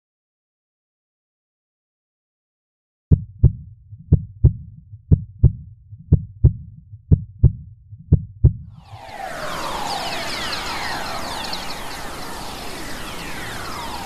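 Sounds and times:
heartbeat thumps: 3.1s - 8.7s
whoosh with sweeping tones: 8.7s - 14.0s.

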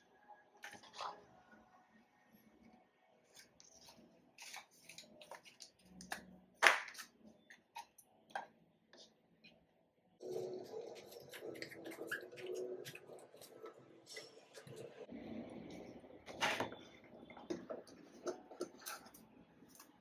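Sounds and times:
paper rustling and crinkling: 3.3s - 5.9s
paper snap: 4.4s - 7.1s.

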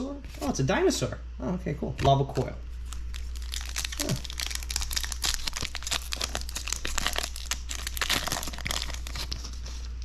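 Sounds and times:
foil wrapper crinkling: 2.8s - 10.0s.

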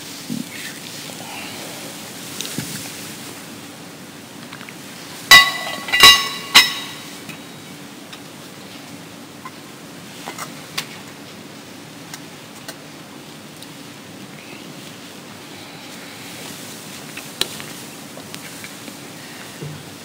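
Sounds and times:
metal vessels clinking: 5.3s - 7.4s.

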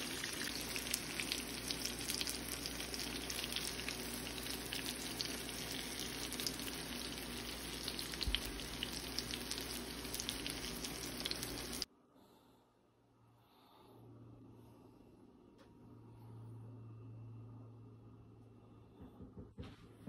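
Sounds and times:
oil crackling and popping: 0.0s - 11.9s
omelette sizzling in oil: 0.0s - 11.9s.

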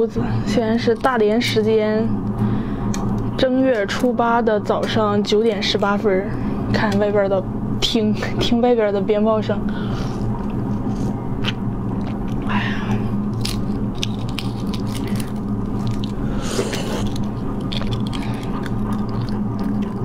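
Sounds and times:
steady low hum: 0.0s - 20.0s
person chewing: 10.2s - 20.0s
eggshell cracking: 13.3s - 16.2s.

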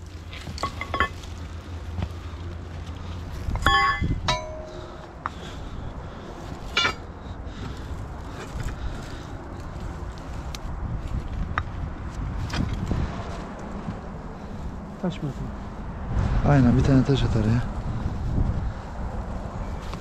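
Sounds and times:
crowbar clanking against rock: 0.4s - 1.3s, 3.5s - 4.9s, 6.6s - 7.1s.

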